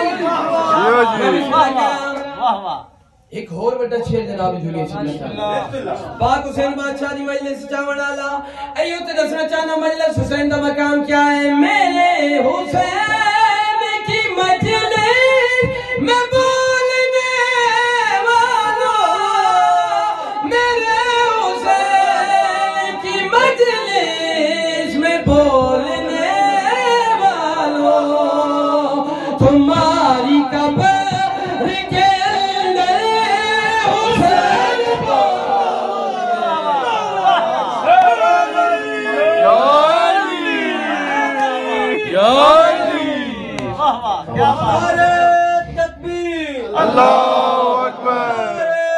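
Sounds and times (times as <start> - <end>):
man chanting unaccompanied: 41.7 - 48.9.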